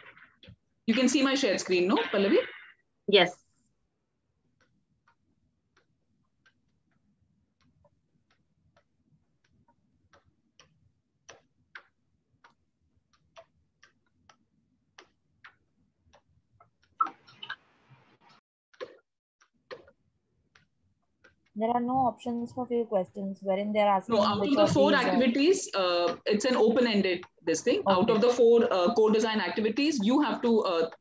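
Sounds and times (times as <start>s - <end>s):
countdown timer ticking: 21.5s - 31.0s.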